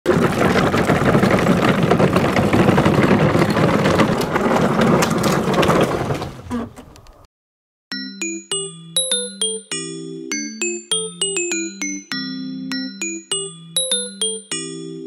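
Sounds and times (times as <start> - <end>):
wheels crunching on gravel: 0.1 - 6.5.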